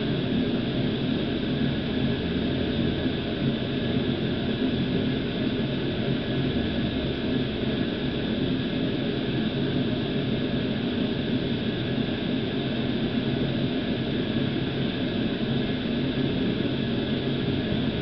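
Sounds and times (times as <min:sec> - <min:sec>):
mechanical hum with hiss: 0:00.0 - 0:18.0.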